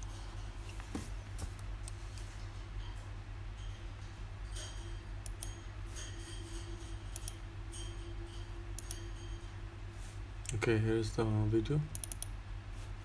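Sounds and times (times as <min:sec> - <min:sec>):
low electrical hum: 0:00.0 - 0:13.0
computer mouse clicking: 0:05.2 - 0:05.6, 0:07.1 - 0:07.4, 0:08.8 - 0:09.0, 0:11.9 - 0:12.3.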